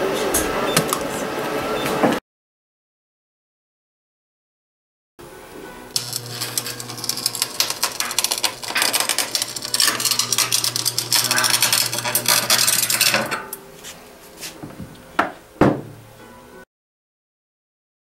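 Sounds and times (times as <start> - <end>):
welder crackling sizzle: 5.9 - 13.6
low hum: 6.0 - 13.4.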